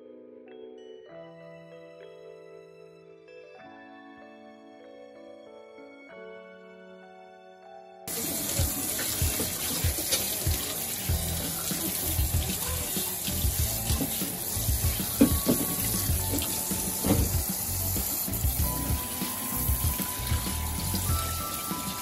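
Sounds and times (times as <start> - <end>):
tap running into metal sink: 8.2 - 22.0.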